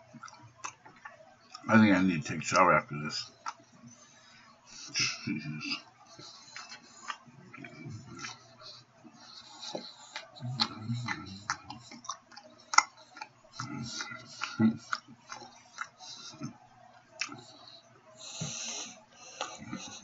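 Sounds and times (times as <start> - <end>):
muffled mumbles: 4.8 - 12.0, 13.5 - 16.6
mouth clicks and lip smacks: 9.1 - 17.6.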